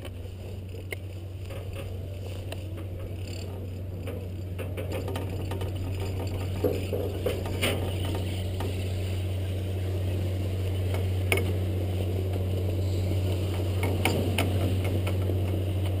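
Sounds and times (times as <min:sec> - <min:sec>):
skis sliding on packed snow: 0:00.0 - 0:03.0
clicks of skis and poles: 0:00.0 - 0:09.0
low hum: 0:00.0 - 0:16.0.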